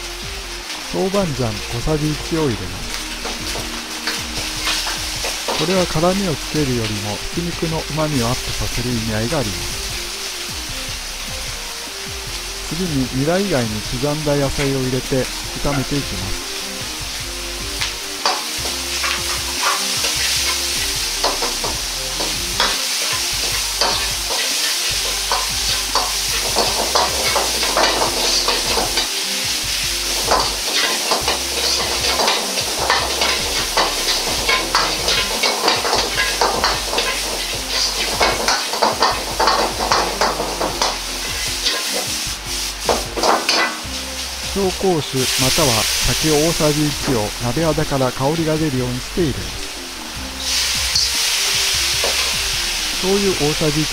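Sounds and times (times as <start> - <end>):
food sizzling: 0.0 - 53.9
metal ladle scraping wok: 2.7 - 6.5, 15.2 - 44.5, 49.6 - 53.0.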